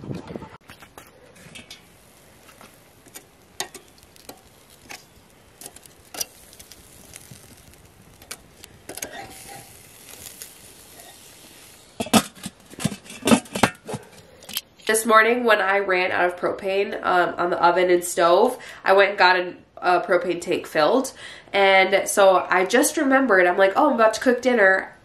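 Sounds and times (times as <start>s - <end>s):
faint meat sizzle: 1.3s - 12.1s
metal tongs clicking on grate: 3.0s - 5.0s.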